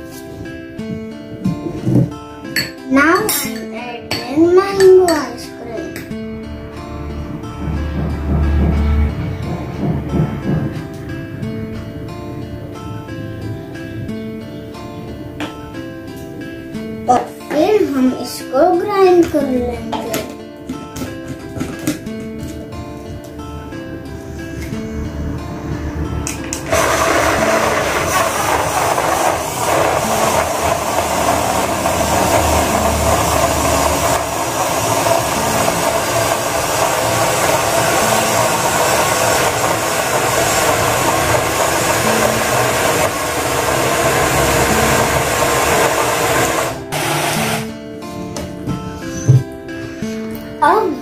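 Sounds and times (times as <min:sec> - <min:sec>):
quiet background music: 0:00.0 - 0:51.0
bottle blender running: 0:26.2 - 0:47.7.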